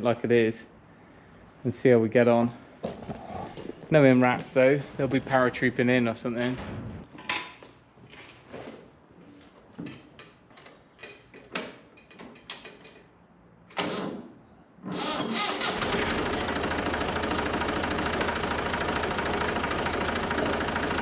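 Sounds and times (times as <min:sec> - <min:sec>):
tractor engine cranking: 0:14.9 - 0:21.0
tractor engine idling: 0:15.7 - 0:21.0.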